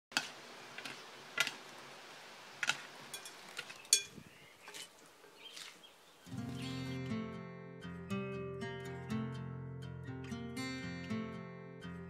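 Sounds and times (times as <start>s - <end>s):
metal utensils clinking on bowl: 3.1s - 4.9s.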